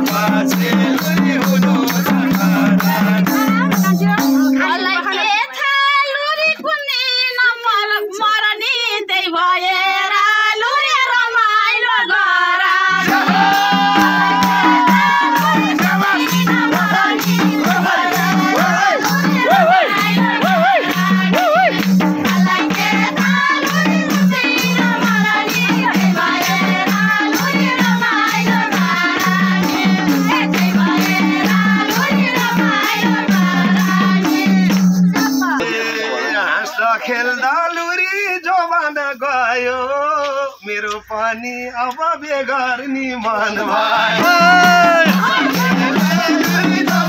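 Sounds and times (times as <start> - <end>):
hand drums beating: 0.0 - 5.2, 13.0 - 35.7, 44.2 - 47.0
women singing folk song: 0.0 - 37.2, 43.2 - 47.0
tambourine jingling: 13.0 - 35.6, 44.2 - 47.0.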